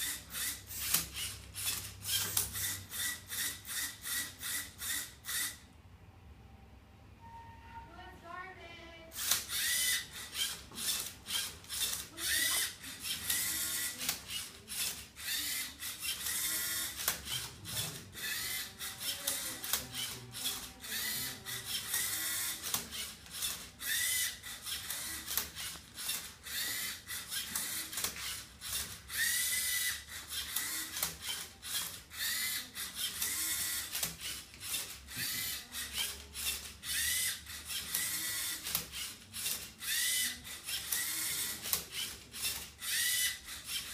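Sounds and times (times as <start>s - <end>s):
electric motors whining: 9.2s - 43.9s
gears rattling: 9.2s - 43.9s.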